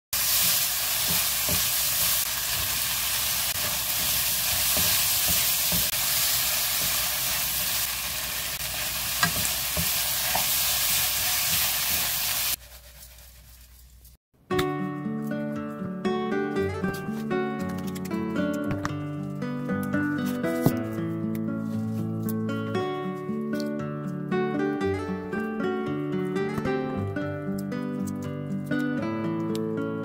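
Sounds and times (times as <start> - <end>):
food sizzling in a frying pan: 0.2 - 12.6
spatula knocking and scraping pan: 0.4 - 2.8, 3.6 - 6.0, 6.7 - 7.1, 9.2 - 10.6.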